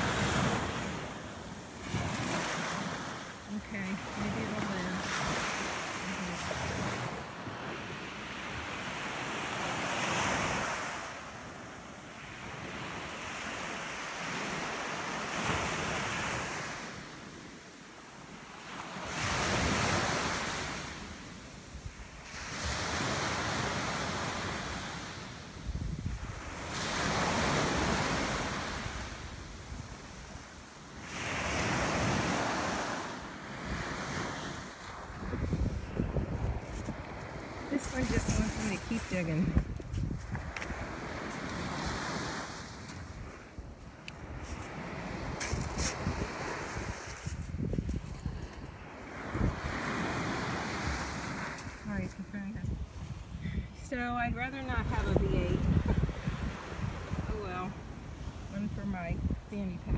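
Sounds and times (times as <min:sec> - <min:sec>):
small surf breaking on beach: 0:22.1 - 0:43.6, 0:44.2 - 0:52.1
wind buffeting microphone: 0:25.6 - 0:26.6, 0:35.1 - 0:41.6, 0:42.9 - 0:49.9, 0:52.6 - 0:59.9.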